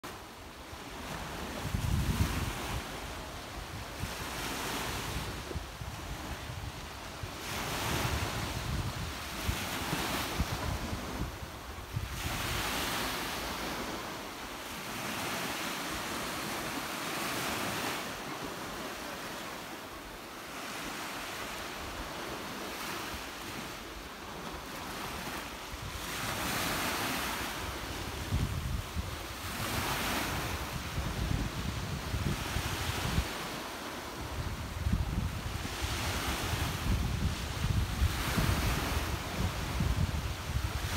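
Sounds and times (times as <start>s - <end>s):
waves washing onto sandy shore: 0.0s - 40.9s
wind buffeting microphone: 0.8s - 14.2s, 24.6s - 40.9s.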